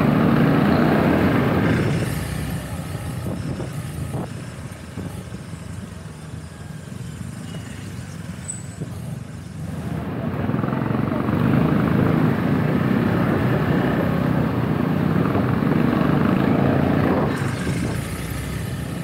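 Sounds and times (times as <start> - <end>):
motorcycle engine: 0.0 - 4.1, 9.5 - 19.0
road noise: 0.0 - 19.0
scooter and motorcycle traffic: 0.0 - 19.0.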